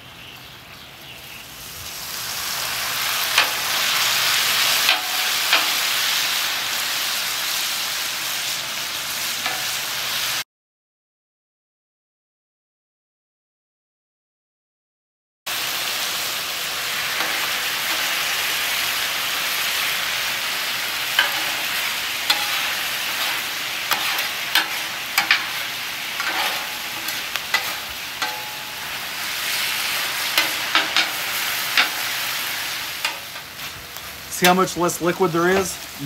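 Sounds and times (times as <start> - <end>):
meat sizzling on a griddle: 0.8 - 10.4, 15.5 - 36.0
metal spatulas scraping and clinking: 17.2 - 18.1, 21.1 - 29.0, 30.3 - 31.2, 33.0 - 33.4.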